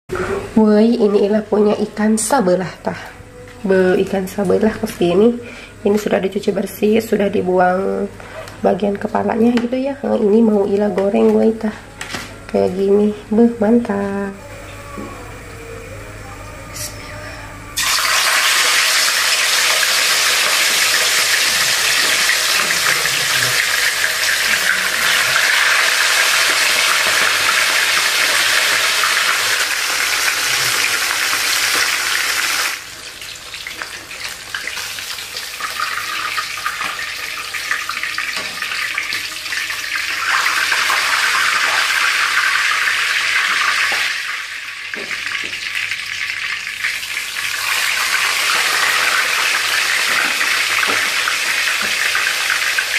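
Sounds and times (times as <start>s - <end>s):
fish sizzling in hot oil: 17.8s - 52.9s.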